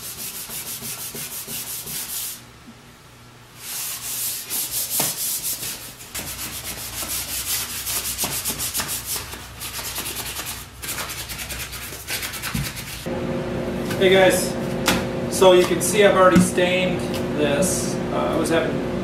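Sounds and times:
sandpaper scraping wood: 0.0s - 2.4s, 3.6s - 13.1s.

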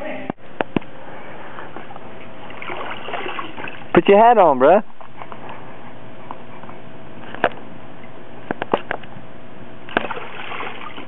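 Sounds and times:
splashes in wading pool: 2.4s - 3.9s, 9.9s - 11.0s.

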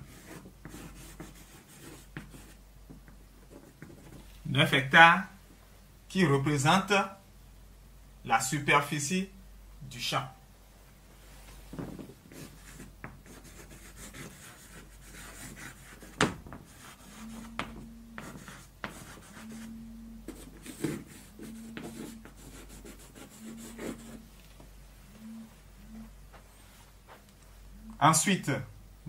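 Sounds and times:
chalk scratching on blackboard: 0.0s - 2.6s, 12.3s - 24.2s
chalk knocking on board: 15.2s - 19.4s.

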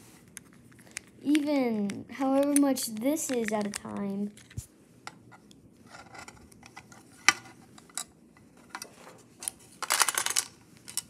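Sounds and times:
plastic tiles clicking in a tray: 3.3s - 4.1s.

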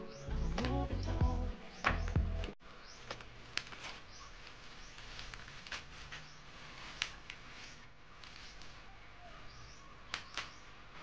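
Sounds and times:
bubble wrap crinkling: 3.2s - 8.9s.

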